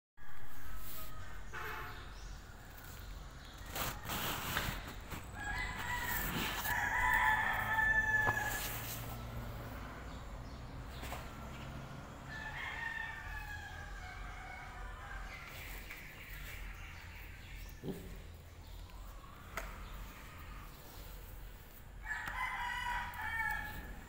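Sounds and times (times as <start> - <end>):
rooster crowing: 0.2 - 1.6, 5.4 - 9.2, 12.3 - 15.3, 22.0 - 24.0.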